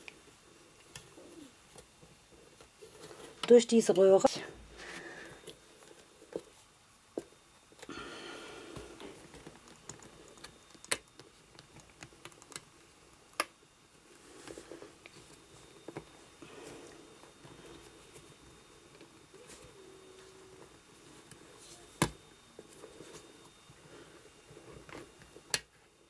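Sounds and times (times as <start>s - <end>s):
small clicks and taps: 9.3s - 13.6s.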